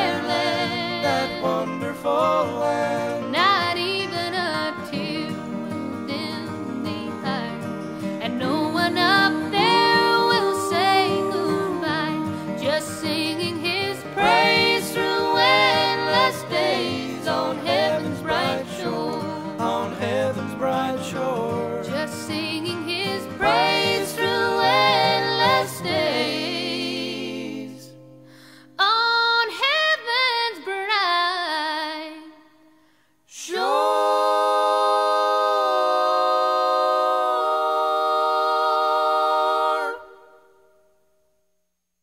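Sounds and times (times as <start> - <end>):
person singing unaccompanied: 0.0 - 7.6, 8.2 - 27.8.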